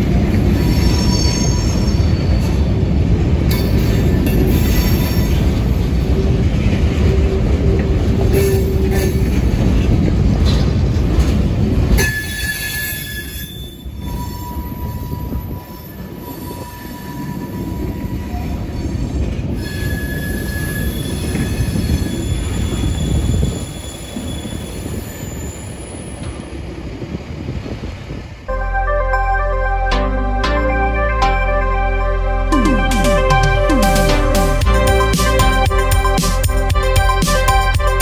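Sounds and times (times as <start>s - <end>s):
wheels squealing: 0.0s - 2.8s, 12.0s - 26.7s
train wheels rumbling on rails: 0.0s - 28.5s.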